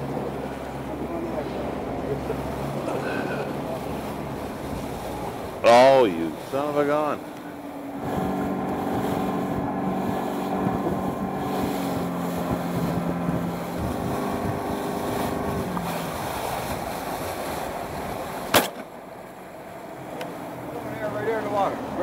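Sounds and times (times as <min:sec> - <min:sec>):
boat motor humming: 0:00.0 - 0:22.0
water washing against hull: 0:00.0 - 0:22.0.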